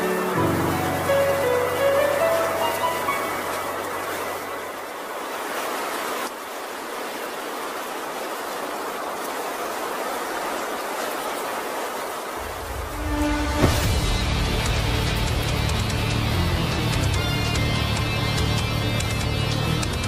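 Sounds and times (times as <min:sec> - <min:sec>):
steady rushing noise: 0:00.0 - 0:20.0
sharp hit: 0:12.4 - 0:16.6
deep bass: 0:13.4 - 0:20.0.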